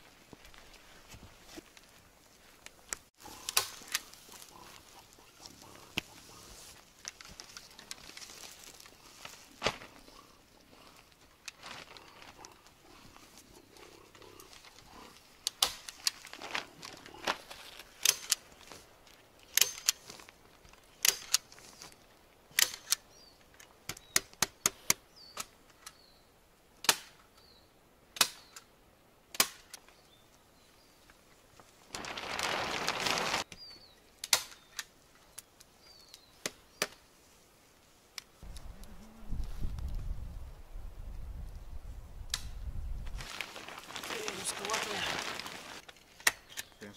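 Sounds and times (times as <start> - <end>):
plastic film rustling: 3.3 - 10.2, 10.8 - 12.7, 15.4 - 19.2, 31.6 - 33.5, 43.1 - 46.2.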